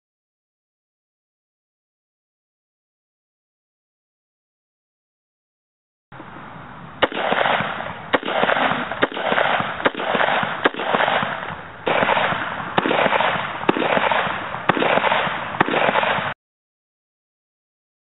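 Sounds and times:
rifle shots with rolling echo: 0:07.0 - 0:16.4.

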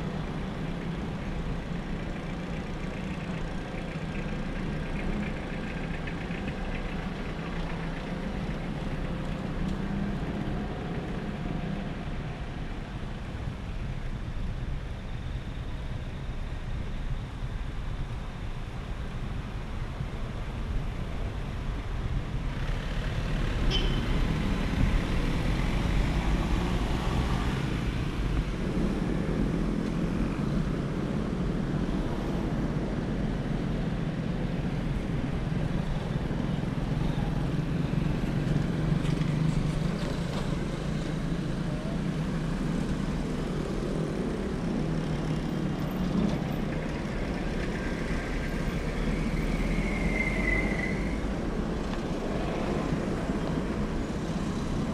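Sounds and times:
cars driving past: 0:22.6 - 0:54.9.

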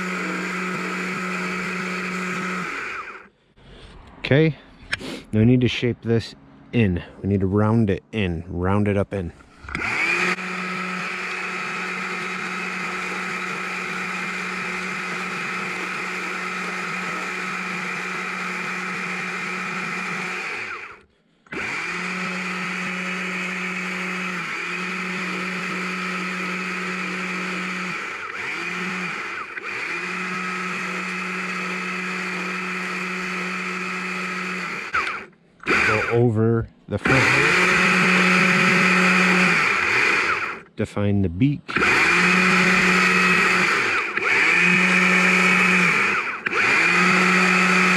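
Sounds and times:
chainsaw cutting log: 0:00.0 - 0:03.3, 0:09.4 - 0:36.3, 0:37.0 - 0:40.7, 0:41.7 - 0:47.9.

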